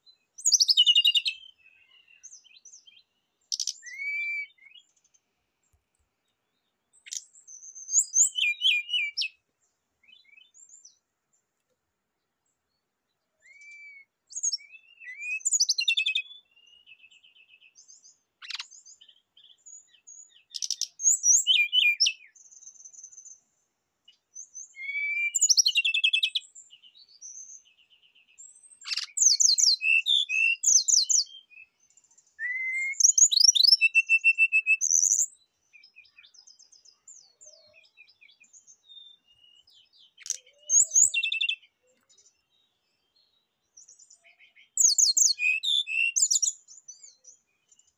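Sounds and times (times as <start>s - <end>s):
bird singing: 0.0s - 11.5s, 12.2s - 47.9s.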